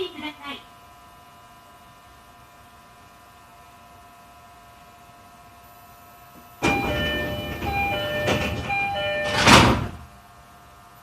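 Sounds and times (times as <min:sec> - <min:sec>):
two-note door chime: 0:06.6 - 0:10.0
doors shutting with a thud: 0:06.6 - 0:10.1
train doors sliding: 0:06.6 - 0:10.2.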